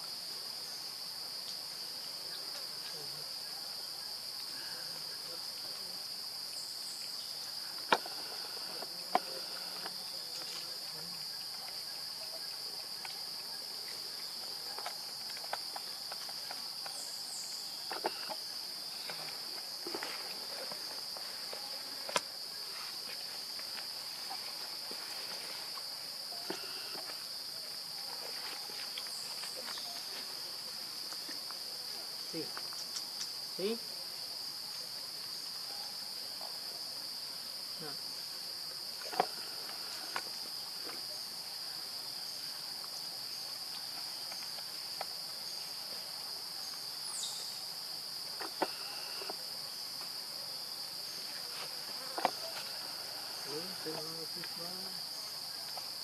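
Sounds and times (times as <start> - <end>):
high-pitched insect drone: 48.5 - 49.8.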